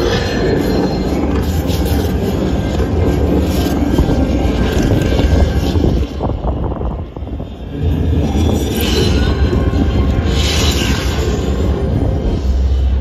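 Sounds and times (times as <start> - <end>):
wind buffeting microphone: 2.1 - 10.3.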